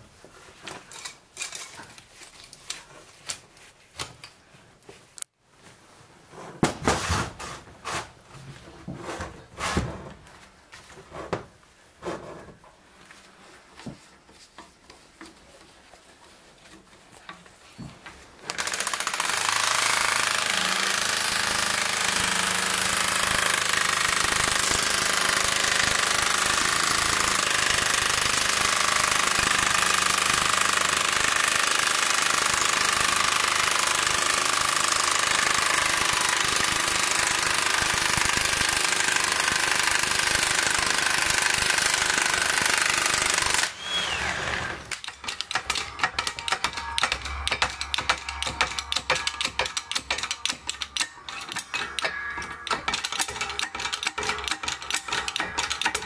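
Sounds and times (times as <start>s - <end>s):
impact wrench hammering: 18.5s - 56.0s
irregular clicks and knocks: 44.8s - 56.0s.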